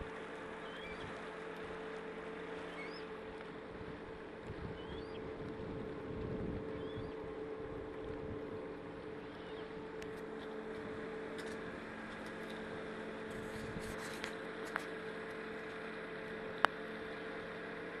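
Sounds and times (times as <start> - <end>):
boat motor humming: 0.0 - 18.0.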